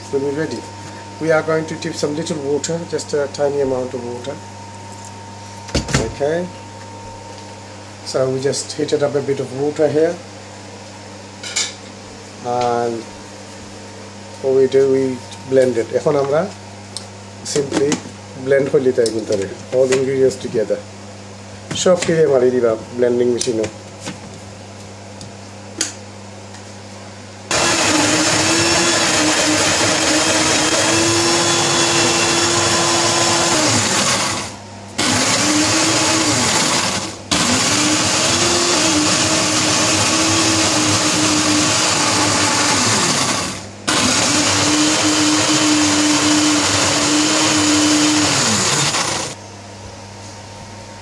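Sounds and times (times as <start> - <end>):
electric blender grinding: 27.5 - 49.4.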